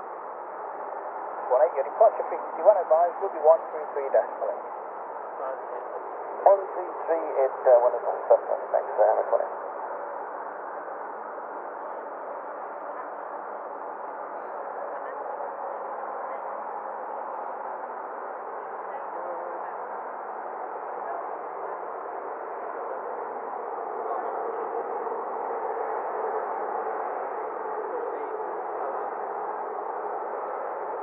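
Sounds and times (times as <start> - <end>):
radio static hiss: 1.4 - 9.7.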